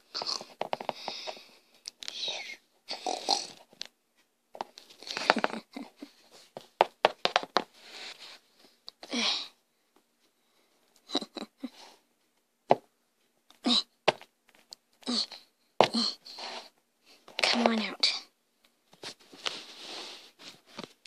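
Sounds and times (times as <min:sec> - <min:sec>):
toothpaste tube handled: 0:00.2 - 0:02.1
plastic toy tapping on hard floor: 0:06.8 - 0:07.7.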